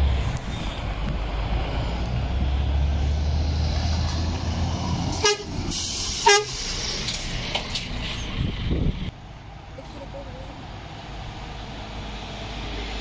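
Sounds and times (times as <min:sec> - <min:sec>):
lorry diesel engine passing: 0:00.0 - 0:13.0
truck horn toots: 0:05.2 - 0:05.6, 0:06.2 - 0:06.6.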